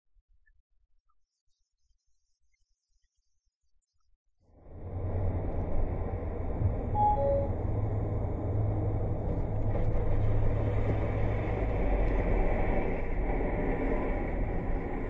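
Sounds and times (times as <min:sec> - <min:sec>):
car road and engine rumble: 0:04.5 - 0:15.0.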